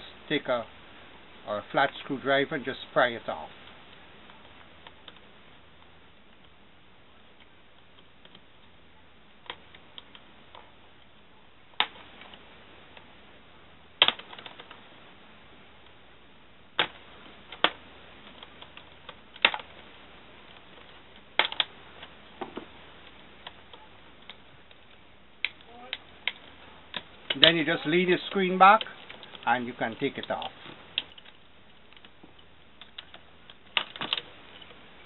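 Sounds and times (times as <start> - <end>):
plastic clips snapping loose: 14.0 - 14.8, 20.5 - 21.7.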